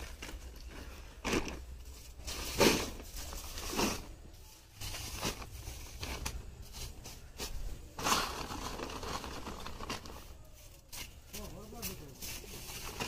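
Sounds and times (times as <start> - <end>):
plastic sheet crinkling: 8.0 - 13.0.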